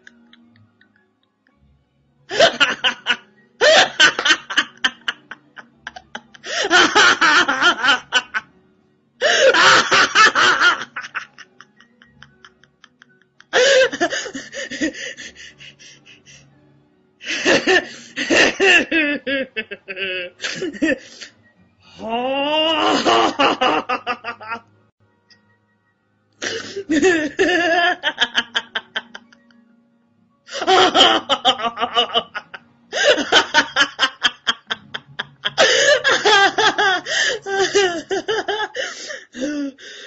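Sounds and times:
woman laughing: 0:02.3 - 0:08.4, 0:09.2 - 0:16.1, 0:17.3 - 0:21.1, 0:22.8 - 0:24.6, 0:26.6 - 0:29.5, 0:30.5 - 0:38.8.

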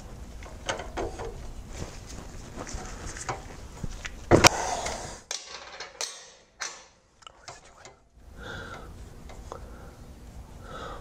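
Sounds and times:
tools clicking: 0:05.3 - 0:08.0.

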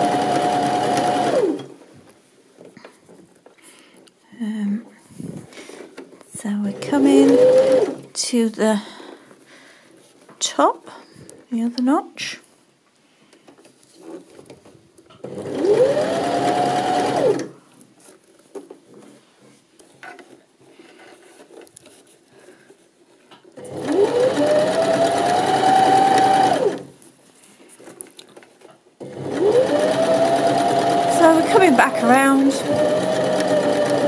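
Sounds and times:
sewing machine motor whining: 0:00.0 - 0:01.7, 0:06.7 - 0:08.0, 0:15.2 - 0:17.5, 0:23.6 - 0:26.9, 0:29.0 - 0:34.0.

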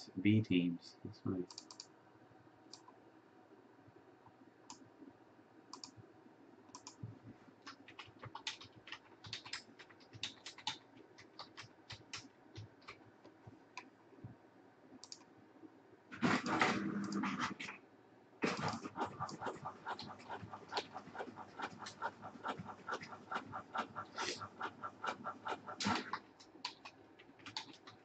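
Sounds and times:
typing on computer keyboard: 0:01.5 - 0:01.9, 0:05.7 - 0:05.9, 0:06.7 - 0:07.0, 0:07.6 - 0:13.4, 0:15.0 - 0:15.2, 0:18.4 - 0:28.0.

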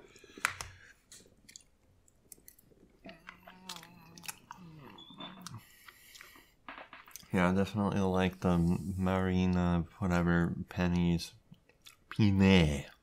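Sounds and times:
person chewing pasta: 0:00.0 - 0:06.5.

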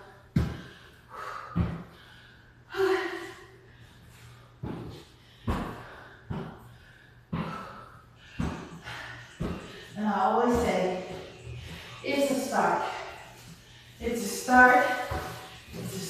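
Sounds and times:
footsteps climbing stairs: 0:07.3 - 0:12.9.

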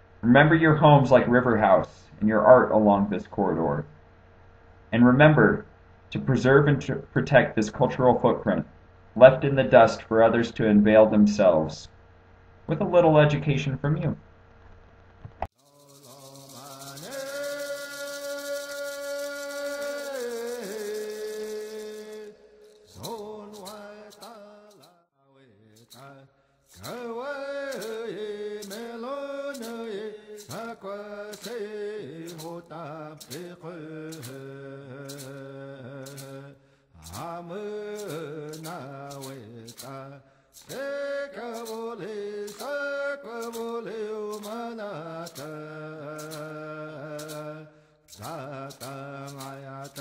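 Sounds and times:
man chanting: 0:00.2 - 0:03.9, 0:09.2 - 0:11.9, 0:15.7 - 0:50.0
sharp percussive strikes: 0:15.6 - 0:24.9, 0:26.7 - 0:28.9, 0:32.3 - 0:32.6, 0:34.1 - 0:34.4, 0:37.0 - 0:40.0, 0:41.5 - 0:42.8, 0:43.4 - 0:47.5, 0:48.1 - 0:50.0.

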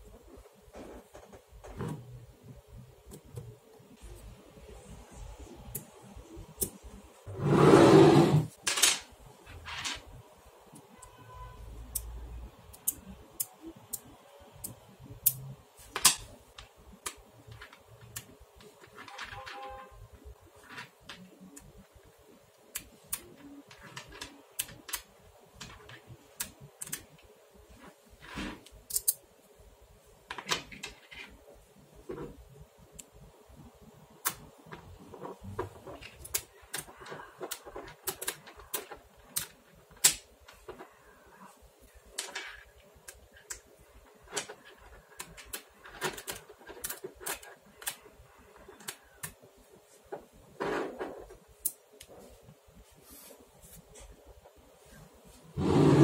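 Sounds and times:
magnetic balls clicking: 0:11.8 - 0:27.3, 0:34.1 - 0:40.9.

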